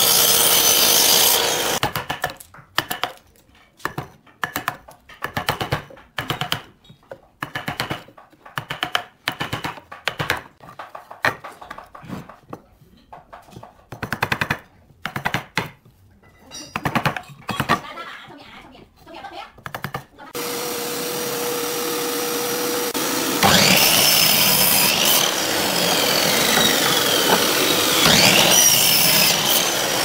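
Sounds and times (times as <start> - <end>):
miter saw cutting wood: 0.0 - 1.8, 20.4 - 30.0
chisel cutting wood: 0.0 - 1.9, 20.3 - 30.0.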